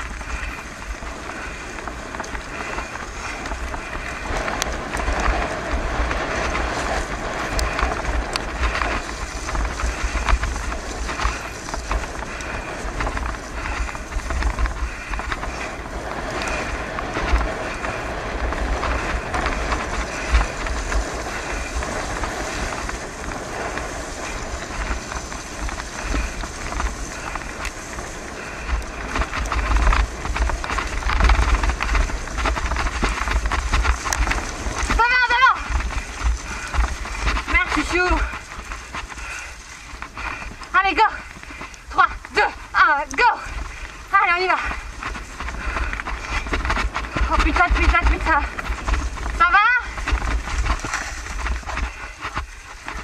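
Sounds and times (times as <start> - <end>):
bicycle tyres on gravel: 0.0 - 53.0
small clicks and rattles: 0.0 - 53.0
wind buffeting microphone: 0.0 - 53.0.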